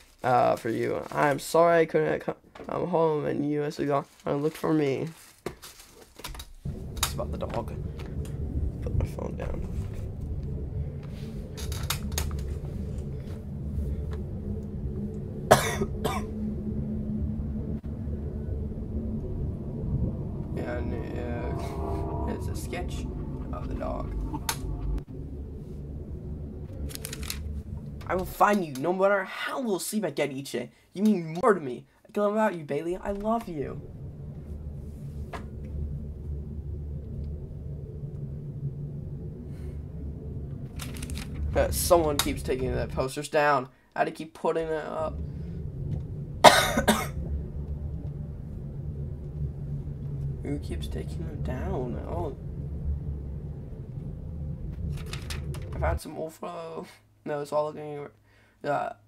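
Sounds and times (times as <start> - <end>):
low droning rumble: 6.4 - 30.4, 32.4 - 43.6, 44.2 - 56.8
steady low hum: 6.4 - 58.0
person coughing: 15.5 - 16.3, 46.4 - 47.2.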